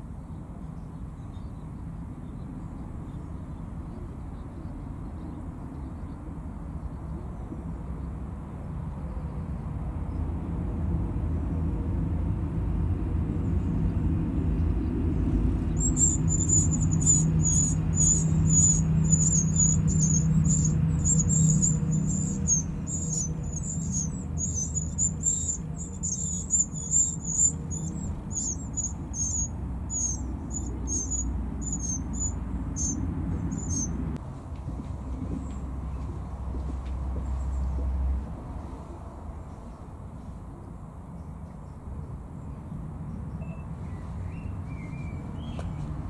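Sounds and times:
steady low rumble: 0:09.7 - 0:39.1
nestlings begging calls: 0:15.4 - 0:34.2.

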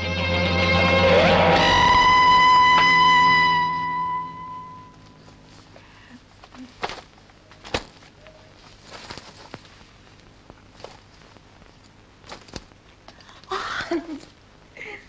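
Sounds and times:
clothing rustle: 0:05.2 - 0:13.3.

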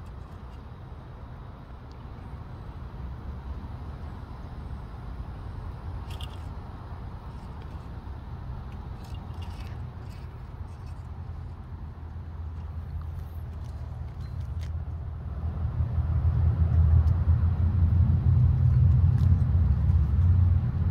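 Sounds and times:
low outdoor rumble: 0:00.0 - 0:20.9.

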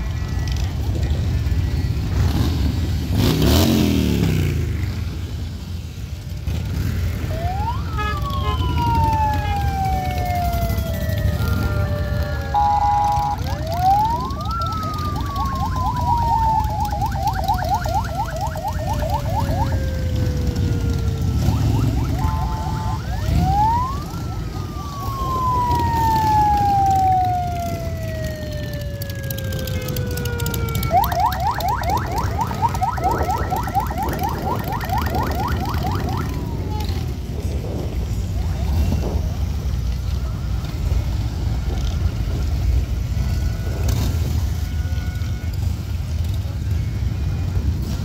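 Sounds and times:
motorcycles rumbling past: 0:00.1 - 0:39.5
siren wailing and yelping: 0:06.7 - 0:37.3.

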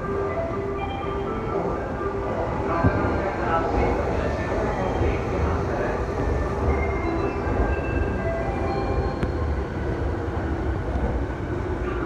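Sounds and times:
train rumbling on rails: 0:00.0 - 0:12.0.

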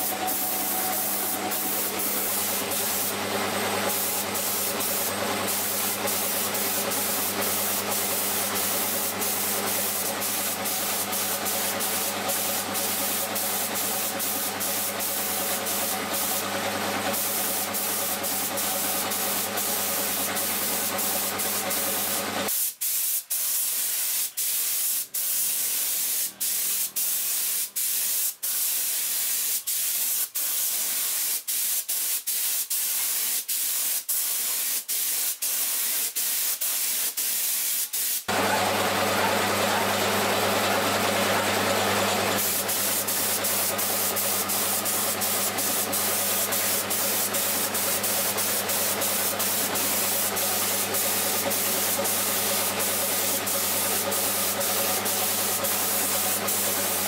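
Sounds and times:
spray gun hissing: 0:00.0 - 0:39.8, 0:42.2 - 0:57.0.

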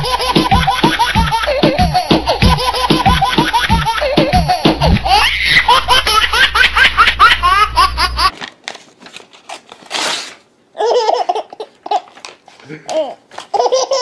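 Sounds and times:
baby laughing: 0:00.0 - 0:08.3, 0:10.8 - 0:14.0
paper tearing: 0:08.3 - 0:10.5.

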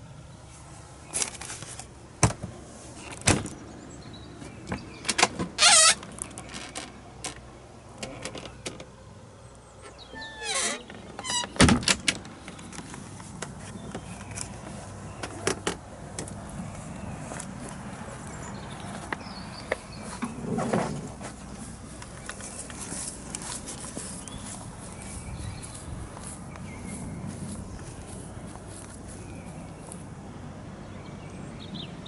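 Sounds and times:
door squeaking: 0:05.1 - 0:06.9, 0:10.0 - 0:12.2
doors and latches clicking: 0:09.9 - 0:12.8.

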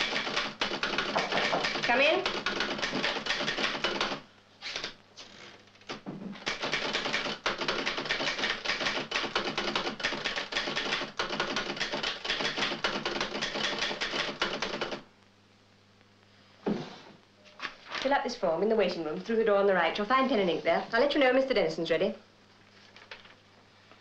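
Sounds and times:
typewriter keys clattering: 0:00.0 - 0:04.2, 0:06.4 - 0:15.0.

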